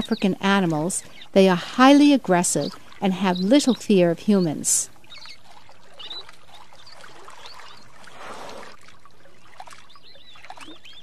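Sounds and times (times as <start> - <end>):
river water trickling: 0.0 - 11.0
high bird chirps: 2.5 - 7.9, 9.8 - 11.0.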